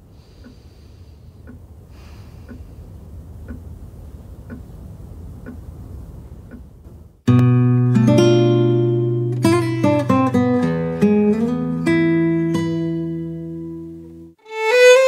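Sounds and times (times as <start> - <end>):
clock ticking: 1.4 - 1.7, 3.4 - 3.7, 4.4 - 5.7, 6.4 - 6.8
strummed acoustic guitar music: 7.3 - 15.0.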